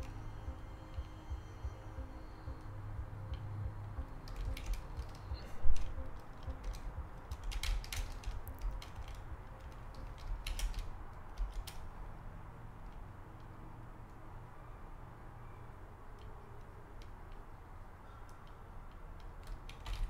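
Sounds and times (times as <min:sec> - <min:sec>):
keyboard keys clicking: 0:00.0 - 0:12.0, 0:18.3 - 0:20.0.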